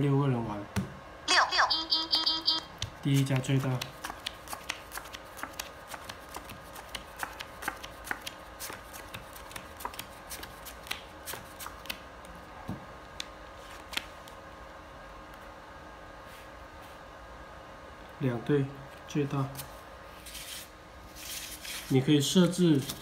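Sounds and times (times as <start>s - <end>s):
playing cards being dealt: 2.7s - 12.0s.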